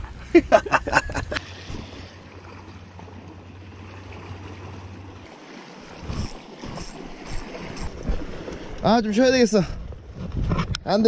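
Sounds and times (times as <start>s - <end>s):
sea washing against rocks: 4.3s - 9.6s
wind rumble on microphone: 9.6s - 11.0s.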